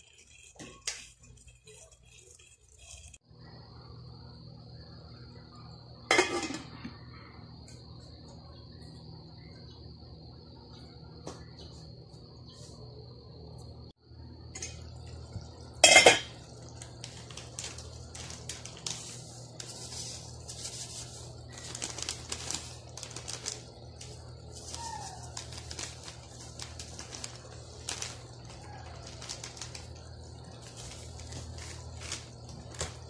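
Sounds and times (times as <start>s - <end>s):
metal cookware clinks and scrapes: 6.1s - 6.7s, 15.8s - 16.4s.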